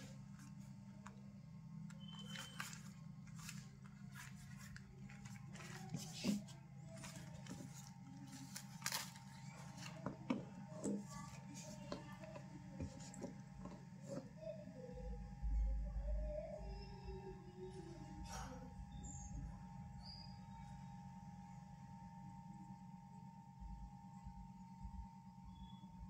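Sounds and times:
steady low hum: 0:00.0 - 0:26.0
pouch rustling: 0:02.2 - 0:10.0.

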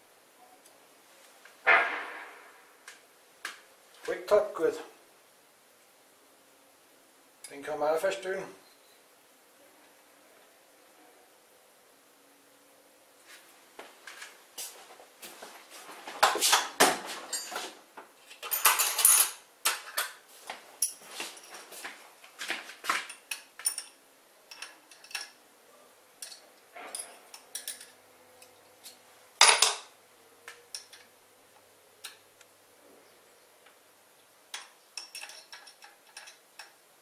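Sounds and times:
sharp metal knock: 0:01.7 - 0:02.5
spanner and bolt metal clinks: 0:17.3 - 0:17.6, 0:18.3 - 0:20.0, 0:23.1 - 0:25.4, 0:26.2 - 0:28.5, 0:34.5 - 0:36.8.

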